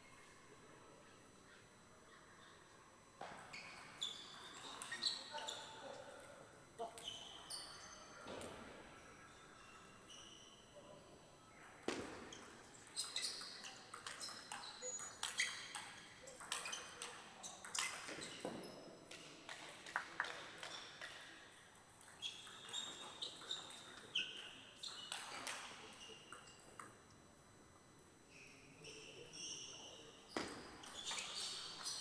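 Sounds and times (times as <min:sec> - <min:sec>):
shoes squeaking on floor: 0:03.2 - 0:05.8.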